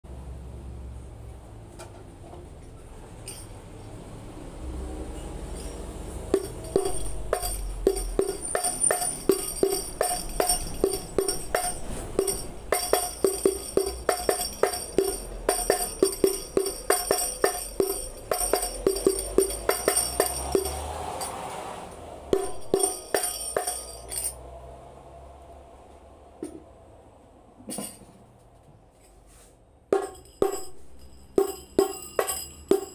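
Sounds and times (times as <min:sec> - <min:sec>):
frame drum with jingles: 0:06.3 - 0:21.4, 0:22.3 - 0:24.3, 0:30.0 - 0:32.9.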